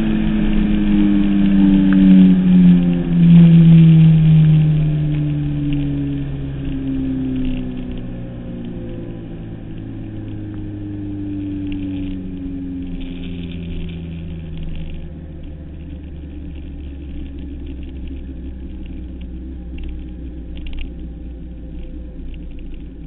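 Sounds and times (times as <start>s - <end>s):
motorcycle engine rumble: 0.0s - 23.0s
rushing wind: 0.0s - 23.0s.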